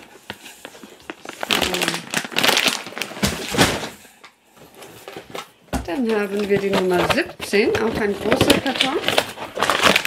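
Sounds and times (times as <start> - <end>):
dog food bag rustling: 0.0 - 4.0.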